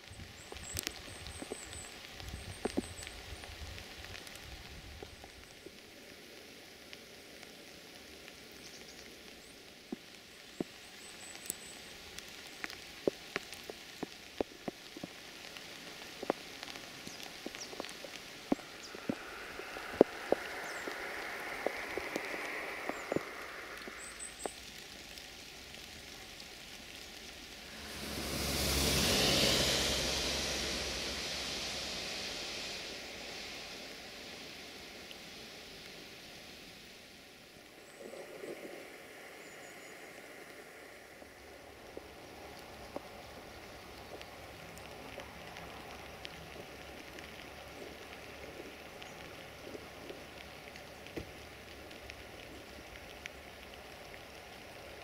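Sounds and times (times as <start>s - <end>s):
steady rain falling: 0.0s - 55.0s
loud rushing noise: 18.6s - 24.2s, 27.6s - 34.5s.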